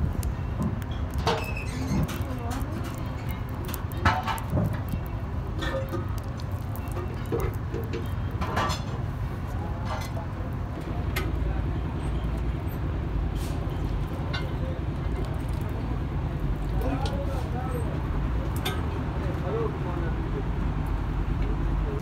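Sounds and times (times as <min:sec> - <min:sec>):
vehicle rumble: 0:00.0 - 0:22.0
voices: 0:01.7 - 0:04.4, 0:08.6 - 0:20.7.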